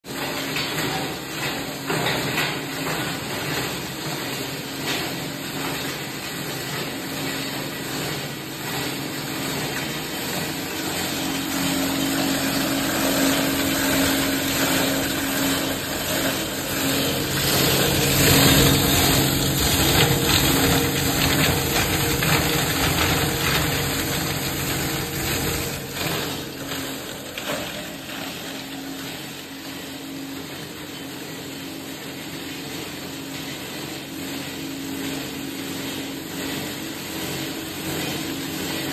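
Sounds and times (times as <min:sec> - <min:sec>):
grinder motor hum: 0:06.8 - 0:30.6.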